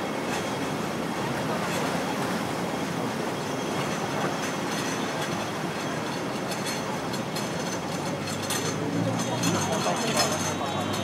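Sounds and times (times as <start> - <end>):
city street traffic: 3.7 - 11.0.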